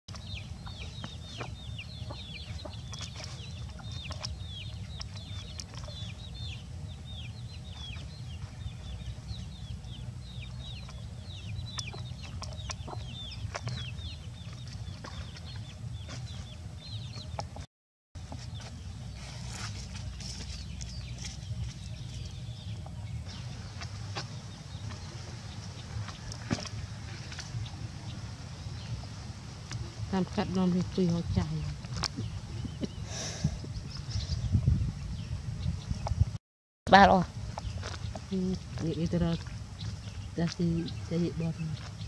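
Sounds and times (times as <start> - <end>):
low steady rumble: 0.1 - 17.6
chicks peeping: 0.1 - 17.7.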